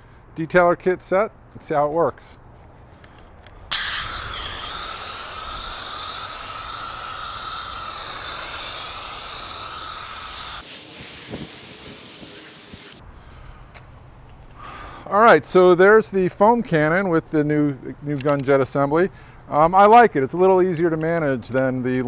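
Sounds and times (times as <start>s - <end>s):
pressure washer spraying foam: 3.7s - 13.0s.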